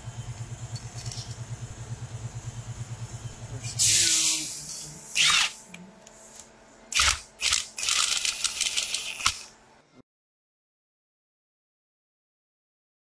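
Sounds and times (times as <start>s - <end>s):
cordless impact tool bursts: 5.2s - 5.6s, 6.9s - 9.5s.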